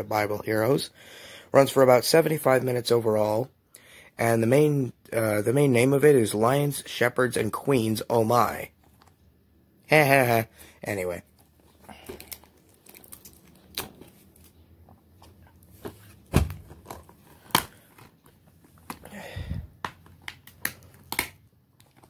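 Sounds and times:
dull thud: 16.3 - 16.7
plastic cases clicking and tapping: 19.8 - 22.0.

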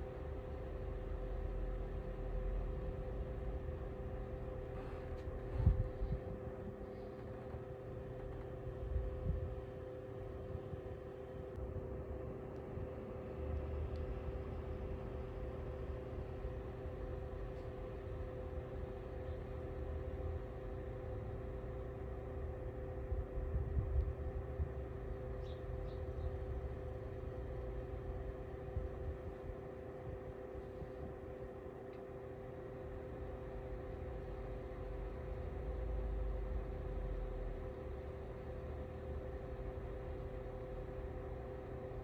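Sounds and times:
space heater fan humming: 0.0 - 42.0
low uneven rumble: 1.1 - 11.6.

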